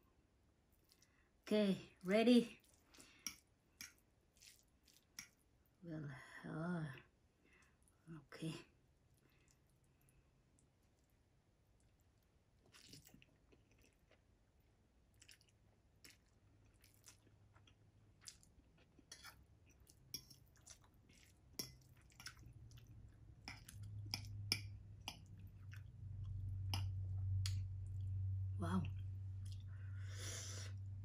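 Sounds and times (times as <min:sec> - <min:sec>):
wet noodle sounds: 0:02.5 - 0:05.8, 0:08.7 - 0:31.0
low hum: 0:25.9 - 0:31.0.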